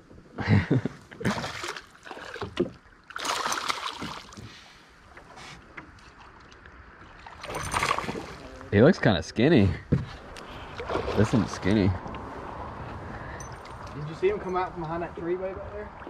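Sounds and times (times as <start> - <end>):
fish splashing at water surface: 1.2 - 4.7, 7.2 - 8.6.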